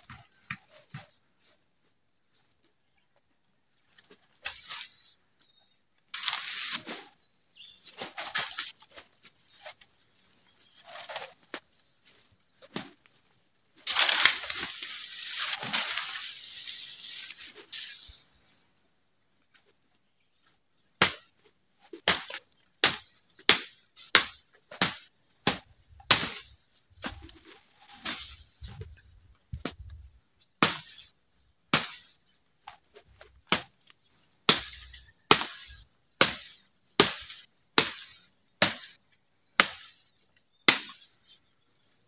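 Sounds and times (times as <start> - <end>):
bamboo leaves rustling: 3.8 - 5.2, 6.1 - 18.3, 24.0 - 30.1, 31.8 - 35.8.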